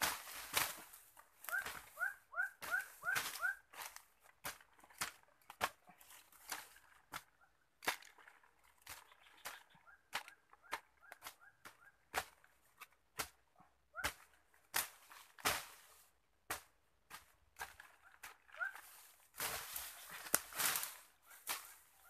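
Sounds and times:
twigs snapping: 19.4s - 21.8s.

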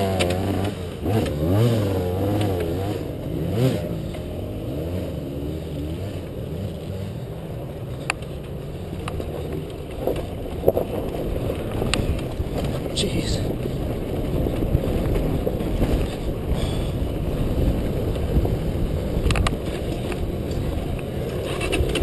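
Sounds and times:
dirt bike engine revving: 0.0s - 7.5s.

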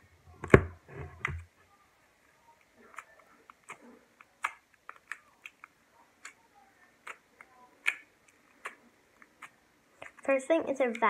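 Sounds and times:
slime clicking and popping: 2.9s - 6.4s, 7.0s - 10.2s.

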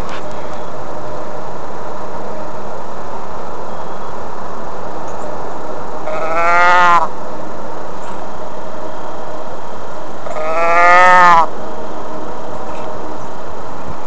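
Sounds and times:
steady background noise: 0.0s - 14.0s
cattle lowing: 10.2s - 11.5s.

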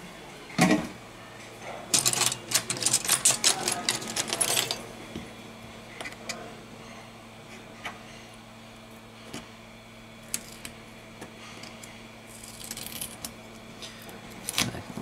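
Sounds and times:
small parts clicking and scraping: 1.9s - 4.8s.

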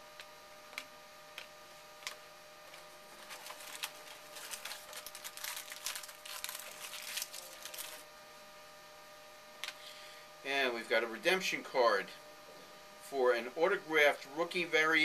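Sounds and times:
foil wrapper crinkling: 2.7s - 8.0s.

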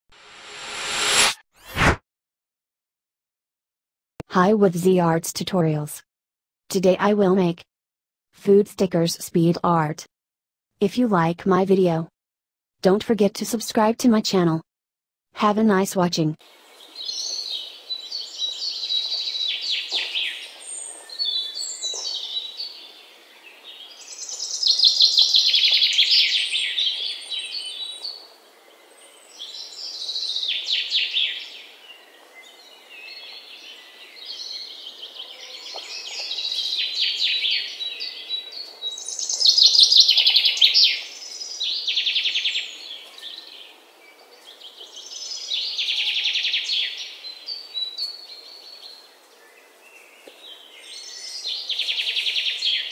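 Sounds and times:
birds chirping and trilling: 16.8s - 52.9s.

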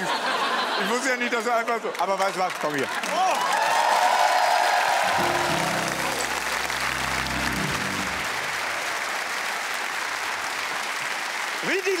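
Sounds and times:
audience applauding: 1.4s - 12.0s
low music chord: 5.1s - 8.6s.

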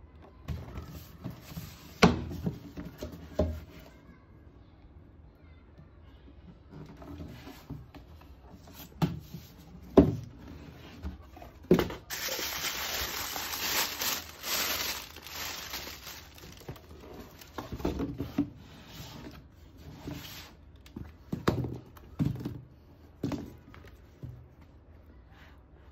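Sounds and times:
tissue paper crinkling: 12.0s - 17.6s.

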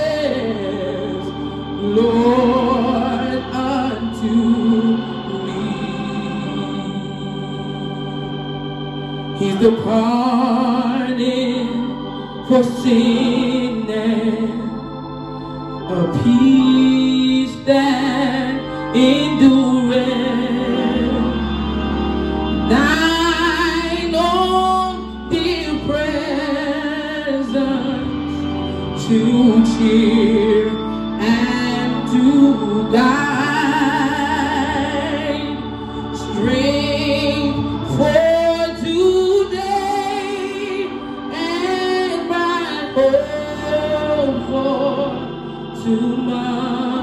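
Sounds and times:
woman singing gospel: 0.0s - 8.0s, 9.3s - 15.0s, 15.8s - 21.9s, 22.5s - 47.0s
accompaniment chords: 0.0s - 47.0s.

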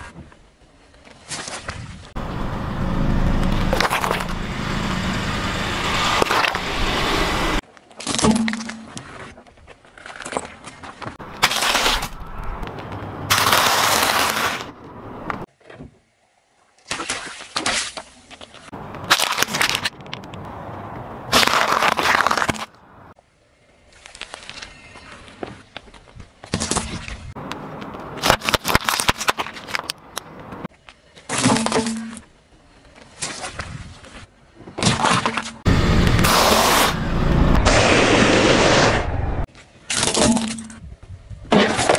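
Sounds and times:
car tyre crushing objects: 3.3s - 4.8s, 10.0s - 15.5s, 18.7s - 23.2s
plastic toy cracking under tyre: 28.2s - 30.2s.

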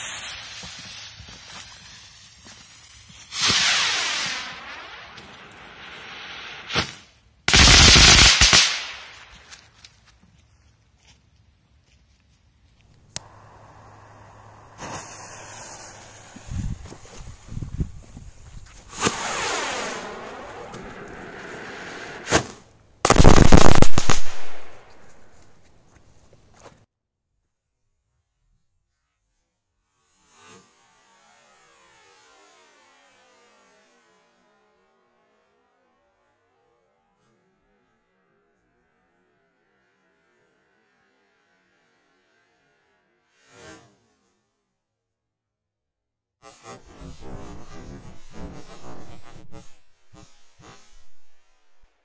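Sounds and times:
firework rocket motor hissing: 0.0s - 6.8s, 13.2s - 24.2s
burst of crackling: 3.0s - 9.5s, 13.1s - 25.6s, 46.6s - 51.9s
sharp pop: 22.2s - 22.6s.

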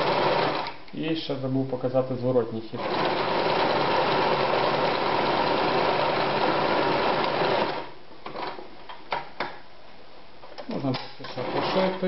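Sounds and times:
sewing machine running: 0.0s - 0.7s, 2.8s - 8.5s, 11.3s - 12.0s.

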